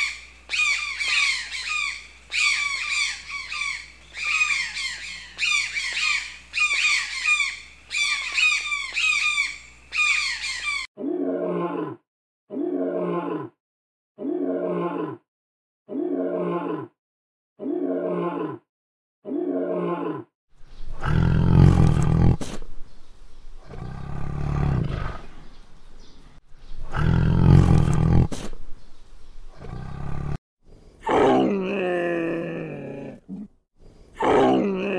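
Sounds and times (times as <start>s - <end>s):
harsh rapid squawking calls: 0.0s - 10.9s
deep rough animal calls: 19.5s - 22.5s, 26.8s - 28.5s, 29.5s - 30.4s.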